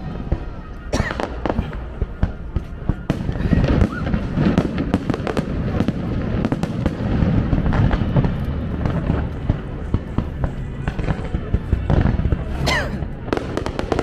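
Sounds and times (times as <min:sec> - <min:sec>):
fireworks cracks and bangs: 0:00.0 - 0:14.0
low booming: 0:00.0 - 0:14.0.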